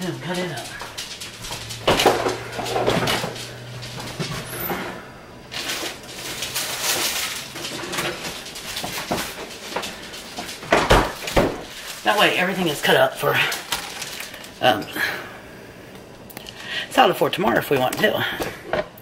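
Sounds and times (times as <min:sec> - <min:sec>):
low hum: 0:00.0 - 0:12.0
rustling: 0:00.0 - 0:14.6
cupboard doors clunking: 0:00.8 - 0:06.5, 0:07.5 - 0:11.8.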